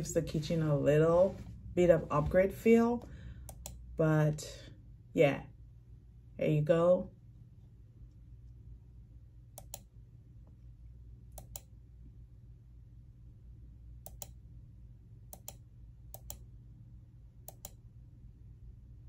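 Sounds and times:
faint low hum: 0:00.0 - 0:19.0
computer mouse clicking: 0:03.4 - 0:03.8, 0:09.5 - 0:09.9, 0:11.3 - 0:11.7, 0:14.0 - 0:14.4, 0:15.3 - 0:16.5, 0:17.4 - 0:17.8.

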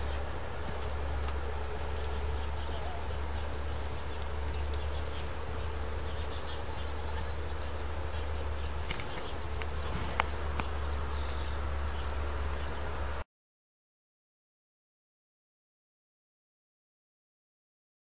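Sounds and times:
low buzzing hum and hiss: 0:00.0 - 0:13.2.

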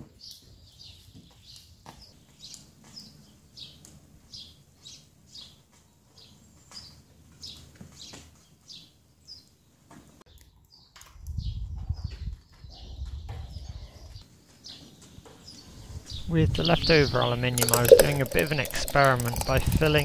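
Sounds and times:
bird chirping: 0:10.3 - 0:20.0.

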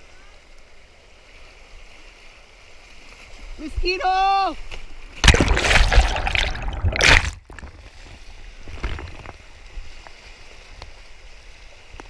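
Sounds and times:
churning water splashing: 0:04.6 - 0:10.6.

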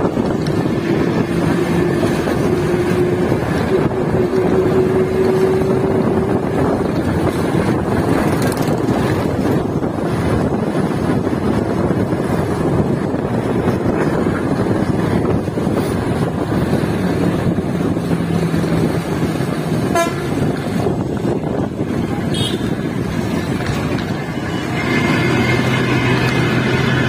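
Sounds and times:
bus engine and tyre noise: 0:00.0 - 0:27.0
vehicle horn: 0:19.9 - 0:20.5, 0:22.3 - 0:22.9.

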